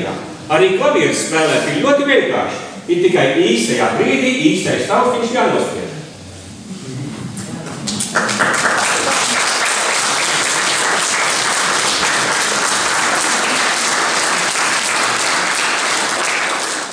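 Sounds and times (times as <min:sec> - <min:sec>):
audience applauding: 0:07.9 - 0:16.9.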